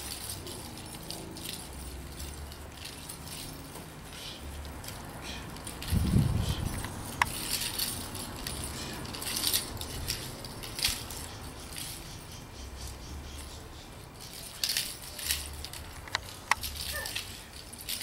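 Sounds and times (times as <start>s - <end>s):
wooden sticks clacking together: 14.2s - 18.0s.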